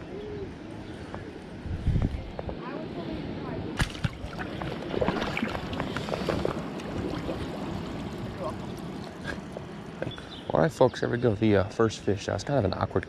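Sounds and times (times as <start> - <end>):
water sloshing around legs: 3.8 - 10.2.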